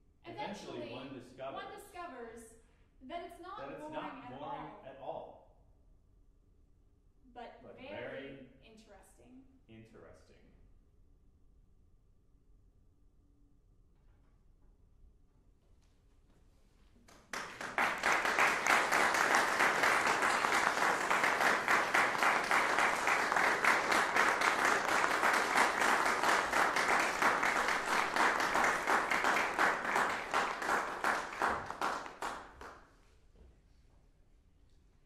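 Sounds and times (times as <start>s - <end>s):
audience applauding: 17.1s - 32.8s.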